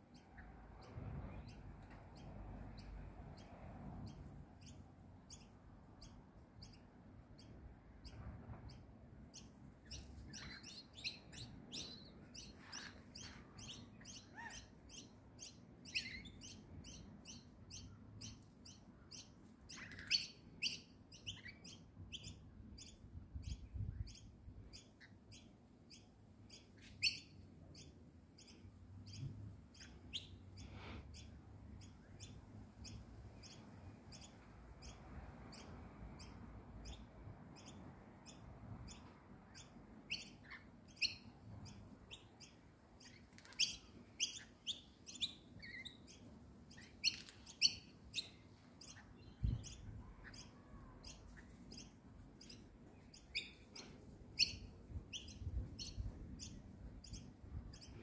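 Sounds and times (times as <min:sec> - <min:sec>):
birds chirping: 0:00.0 - 0:58.0
sharp screechy bird calls: 0:09.4 - 0:18.4.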